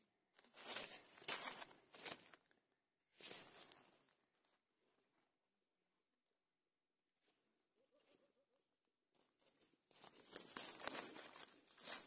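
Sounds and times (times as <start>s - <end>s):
dead leaves rustling and crackling: 10.0s - 12.0s.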